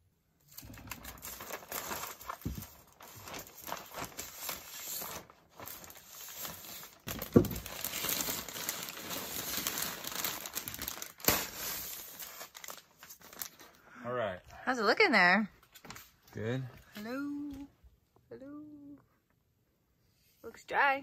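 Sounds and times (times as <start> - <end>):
plastic sheeting and insulation crinkling: 0.4 - 13.8.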